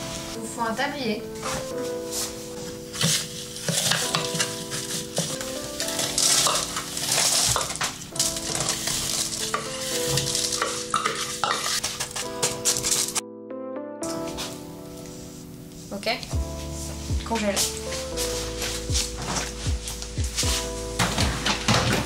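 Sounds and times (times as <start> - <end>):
soft background music: 0.0 - 22.0
crumbs rustling: 1.6 - 13.2, 17.6 - 21.6.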